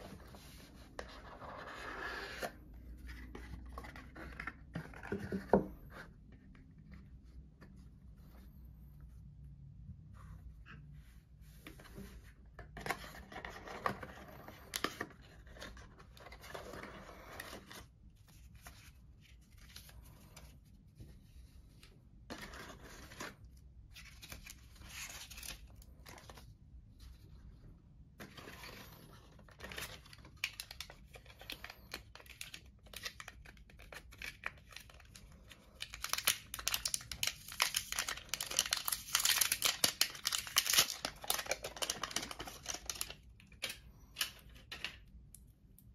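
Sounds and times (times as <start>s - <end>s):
plastic wrapping crinkling: 35.8s - 43.2s.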